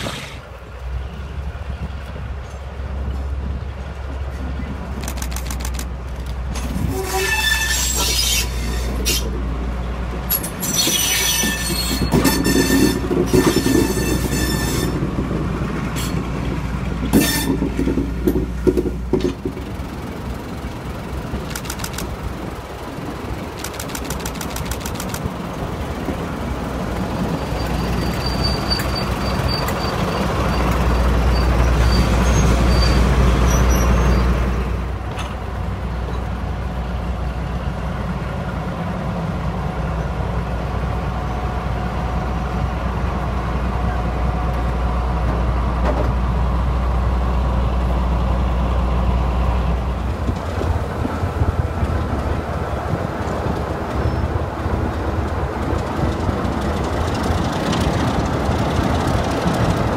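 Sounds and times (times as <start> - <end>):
diesel locomotive engine rumble: 0.0 - 59.9.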